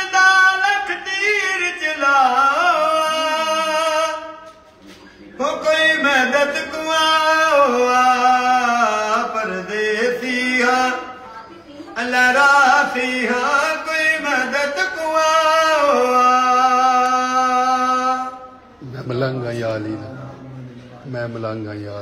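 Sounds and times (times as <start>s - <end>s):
elderly man singing a lament: 0.0s - 4.5s, 5.4s - 11.2s, 12.0s - 18.6s.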